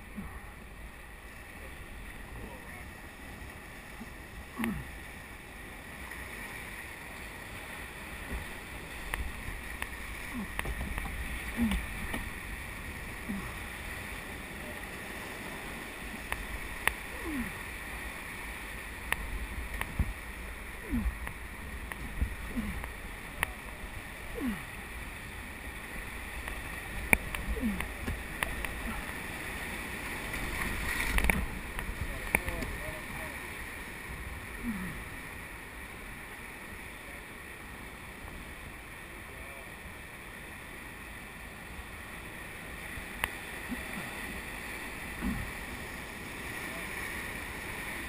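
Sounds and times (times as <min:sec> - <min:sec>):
whitewater rapids rushing: 0:00.0 - 0:48.0
gurgling splashes: 0:03.9 - 0:05.2, 0:07.6 - 0:25.1, 0:25.8 - 0:35.3, 0:43.4 - 0:47.3.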